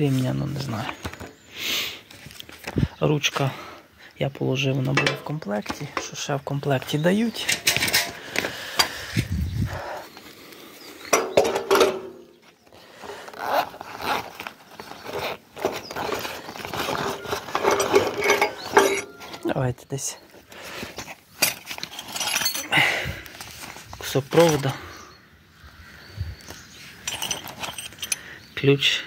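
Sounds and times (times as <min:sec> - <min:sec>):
metal spanners clinking: 0:04.8 - 0:09.0, 0:11.1 - 0:12.4, 0:15.6 - 0:19.5, 0:21.0 - 0:24.9, 0:26.4 - 0:28.5
fabric bag rustling: 0:13.1 - 0:19.5.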